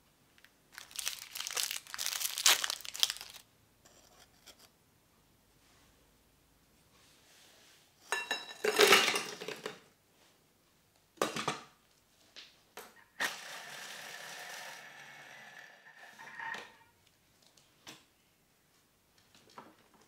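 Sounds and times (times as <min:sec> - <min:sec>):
cookies clattering into steel bowl: 0:08.1 - 0:09.8
kitchen machine humming: 0:13.2 - 0:16.4.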